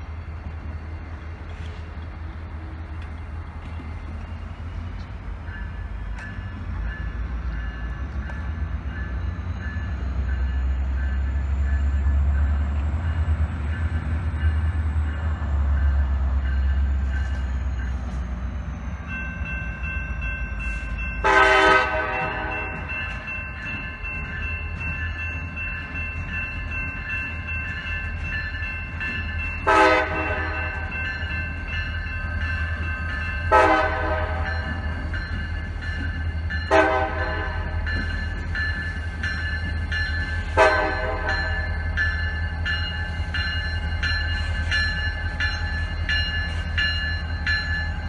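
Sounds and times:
diesel locomotive engines rumbling: 0:00.0 - 0:48.0
locomotive bell ringing: 0:03.6 - 0:48.0
locomotive horn blast: 0:21.2 - 0:22.9, 0:29.6 - 0:30.9, 0:33.5 - 0:34.7, 0:36.7 - 0:37.8, 0:40.5 - 0:41.7.

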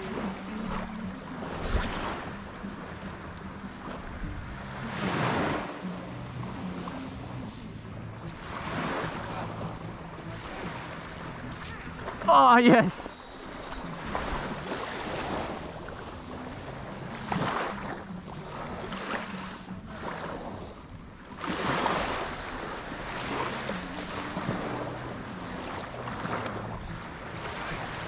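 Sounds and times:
wind on microphone: 0:00.0 - 0:12.2
small waves washing: 0:00.0 - 0:28.0.

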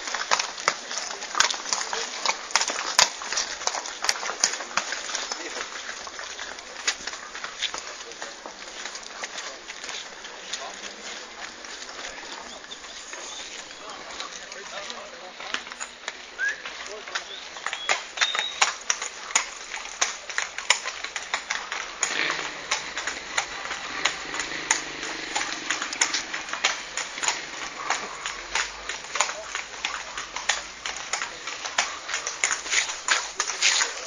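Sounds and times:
hooves clopping on wet pavement: 0:00.0 - 0:34.0.

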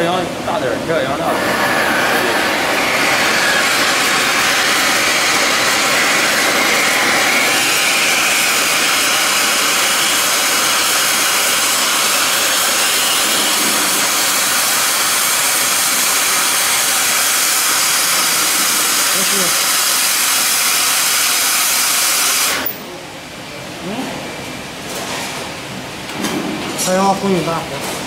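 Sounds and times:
cutting torch flame hissing: 0:01.2 - 0:22.8.

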